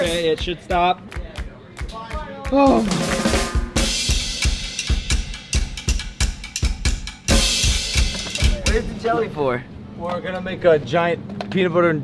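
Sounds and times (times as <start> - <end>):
fast drum beat: 0.0 - 9.3.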